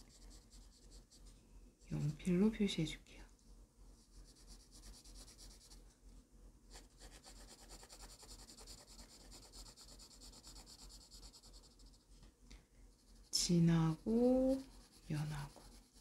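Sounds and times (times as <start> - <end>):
pencil scratching on paper: 0.0 - 1.3, 4.0 - 5.8, 6.7 - 12.0, 13.0 - 16.0.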